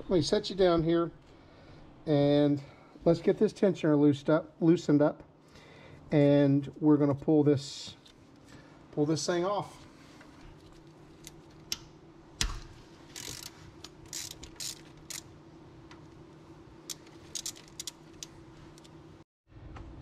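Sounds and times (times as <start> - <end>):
socket ratchet clicking: 13.2 - 15.3, 16.9 - 18.3.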